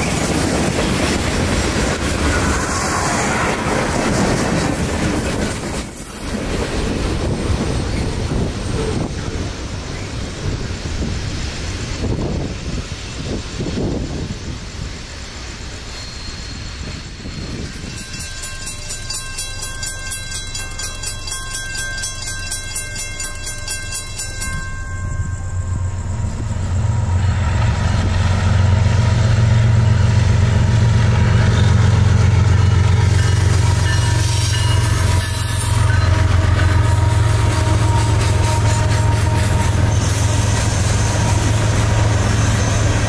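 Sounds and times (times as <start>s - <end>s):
diesel locomotive engine rumble: 0.0s - 43.0s
steady tones: 17.8s - 43.0s.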